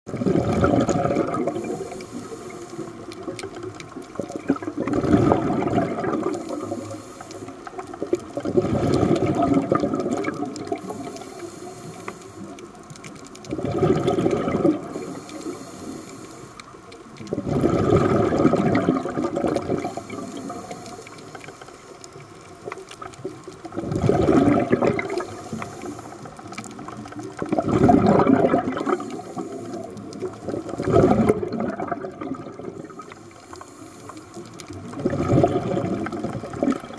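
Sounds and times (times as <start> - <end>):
exhaled bubbles gushing underwater: 0.1 - 16.2, 16.8 - 36.9
high hiss of regulator inhaling: 1.5 - 3.0, 6.3 - 7.6, 10.8 - 12.6, 14.9 - 16.8, 19.8 - 22.0, 25.1 - 26.6, 28.8 - 30.0, 33.0 - 34.5.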